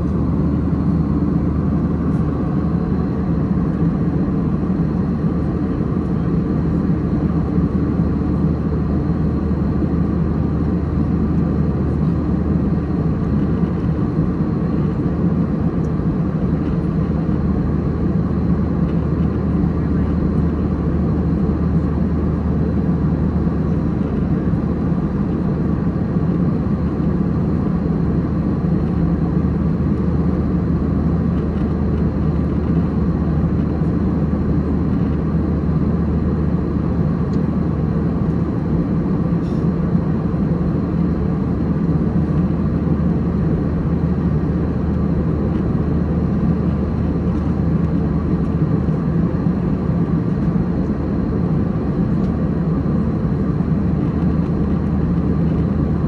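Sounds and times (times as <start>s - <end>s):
jet cabin drone: 0.0s - 56.0s.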